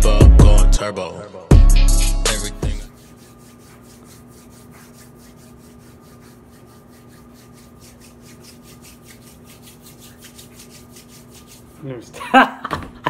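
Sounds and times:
hands rubbing together: 0:02.9 - 0:12.2
steady low hum: 0:02.9 - 0:12.7.

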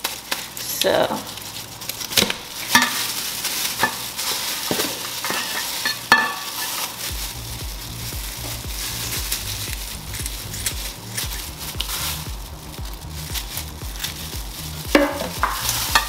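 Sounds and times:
kitchen shears snipping: 0:00.0 - 0:16.0
wet rustle of gloved hands: 0:00.0 - 0:16.0
background music with low beat: 0:07.0 - 0:16.0.

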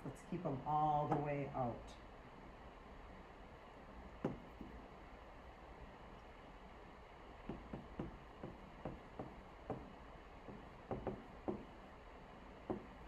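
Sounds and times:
stylus tapping on surface: 0:04.2 - 0:04.8, 0:07.4 - 0:11.7, 0:12.6 - 0:13.0.

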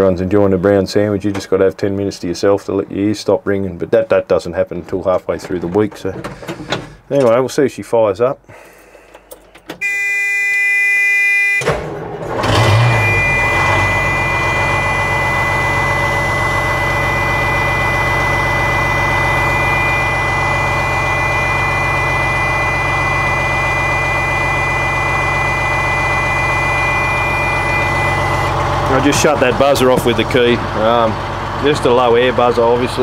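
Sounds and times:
diesel engine starting and idling: 0:05.0 - 0:07.4, 0:08.4 - 0:33.0
low air warning buzzer: 0:09.8 - 0:11.7, 0:12.5 - 0:29.0.

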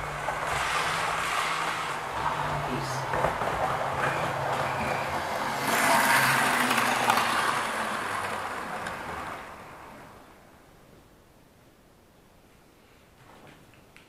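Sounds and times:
model train motor hum: 0:00.0 - 0:10.0.

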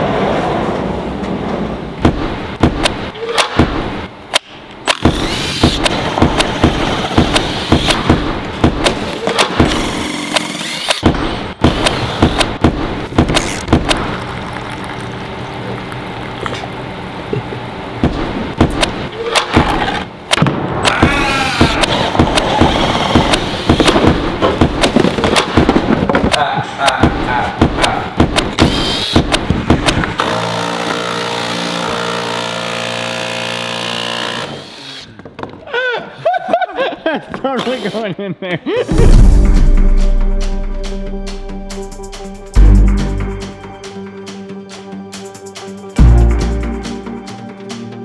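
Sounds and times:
cordless drill whirring: 0:04.9 - 0:05.8, 0:09.7 - 0:11.0, 0:28.6 - 0:29.2, 0:37.6 - 0:38.0.

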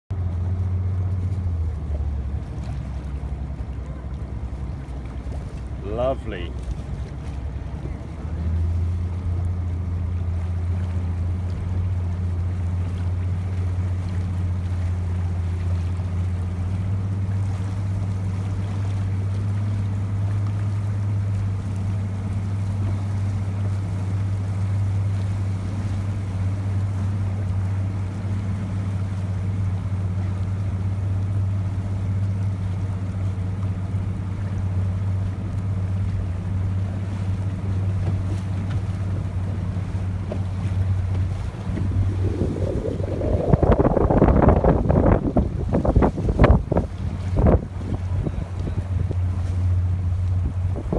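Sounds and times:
boat engine running: 0:00.1 - 0:50.9
water noise: 0:00.1 - 0:50.9
wind noise: 0:41.2 - 0:49.2, 0:50.4 - 0:50.9.

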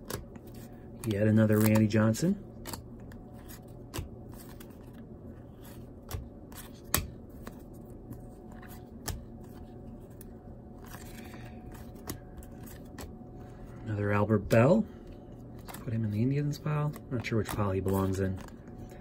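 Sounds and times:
cards snapping: 0:00.0 - 0:02.0, 0:02.6 - 0:05.0, 0:05.6 - 0:13.1
cards rustling: 0:00.0 - 0:19.0.

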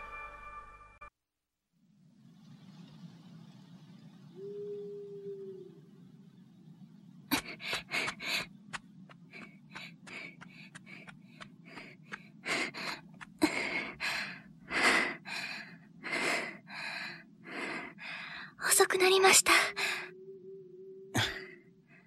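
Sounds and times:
woman panting: 0:07.3 - 0:08.5, 0:09.2 - 0:18.6, 0:19.5 - 0:20.1, 0:21.2 - 0:21.5.

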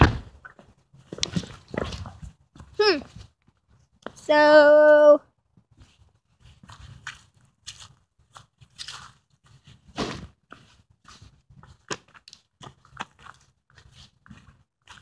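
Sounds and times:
footsteps crunching on leaves and gravel: 0:05.9 - 0:15.0.

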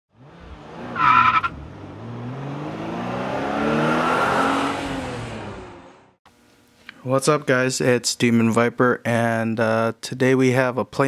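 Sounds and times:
car engine revving: 0:00.1 - 0:06.2
tyre screech: 0:00.9 - 0:01.6.

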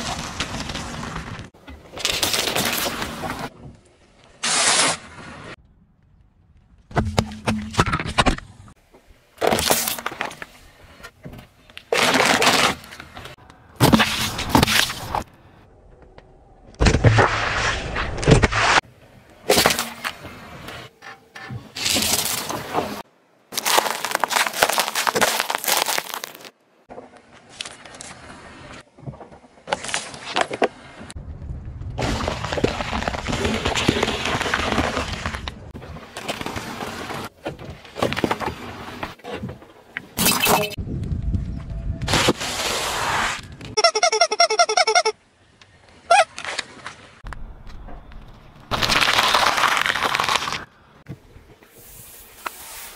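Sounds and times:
low rumble: 0:15.2 - 0:18.3, 0:31.2 - 0:33.8
tyre crushing plastic packages: 0:23.5 - 0:26.5, 0:48.7 - 0:50.7.

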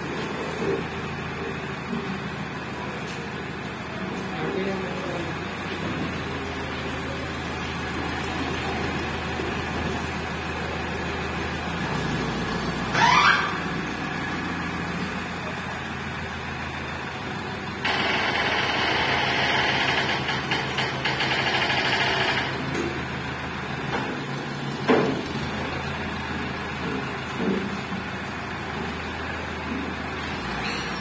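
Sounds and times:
crane engine running: 0:00.0 - 0:31.0.

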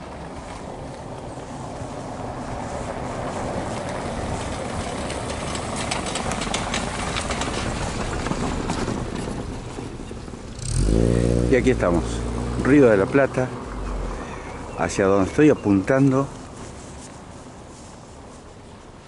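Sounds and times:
tyres rumbling over cobblestones: 0:00.0 - 0:19.0
car engine: 0:01.3 - 0:15.1.

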